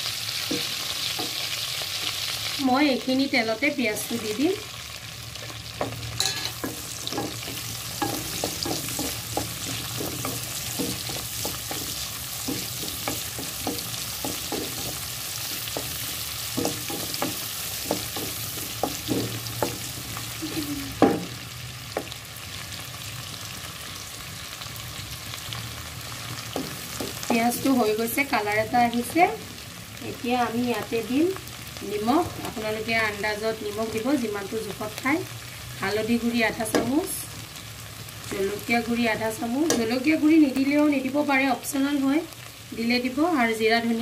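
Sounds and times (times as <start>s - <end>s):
onions sizzling in hot oil: 0.0s - 44.0s
spatula scraping pan: 5.8s - 20.4s.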